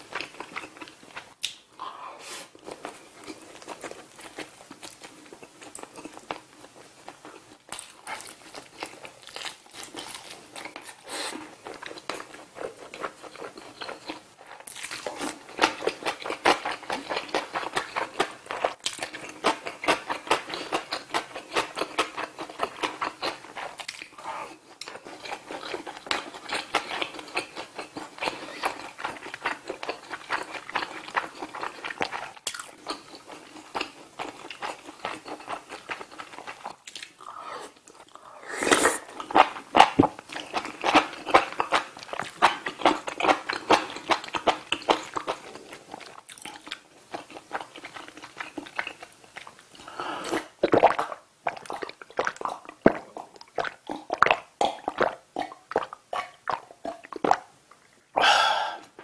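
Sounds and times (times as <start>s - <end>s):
person chewing: 0.0s - 59.0s
slurping spoonful of stew: 37.2s - 39.7s.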